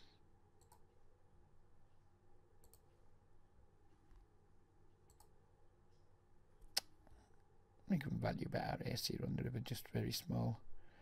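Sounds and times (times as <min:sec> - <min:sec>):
computer mouse clicks: 0:00.6 - 0:00.9, 0:02.6 - 0:02.9, 0:05.1 - 0:05.4.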